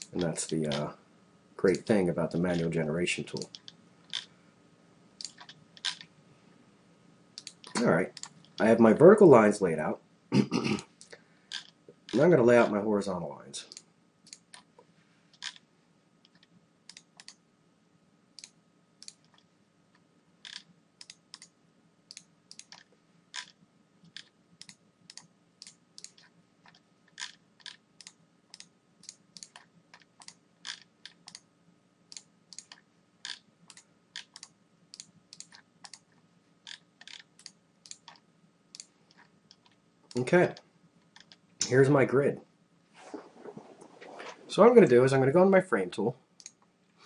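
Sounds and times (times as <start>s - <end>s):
faint steady hum: 0.0s - 47.0s
computer mouse clicking: 3.4s - 4.3s, 5.2s - 6.1s, 7.4s - 8.7s, 16.2s - 17.4s, 18.4s - 19.5s, 20.5s - 21.5s, 22.1s - 31.4s, 32.1s - 36.1s, 36.7s - 40.2s.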